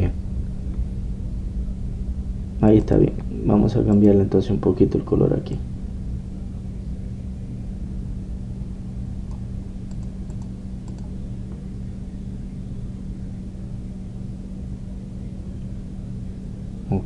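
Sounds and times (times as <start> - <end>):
low hum: 0.0 - 17.0
faint computer clicks: 3.9 - 4.2, 9.2 - 11.2.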